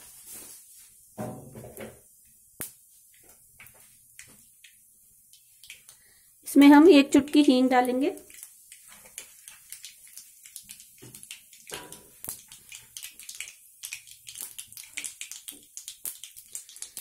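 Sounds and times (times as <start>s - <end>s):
seeds spluttering in hot oil: 2.0s - 17.0s.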